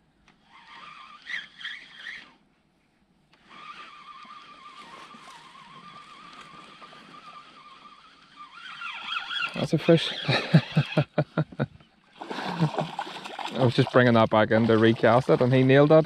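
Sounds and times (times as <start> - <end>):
fishing reel winding whine: 0.3 - 2.4, 3.3 - 11.2.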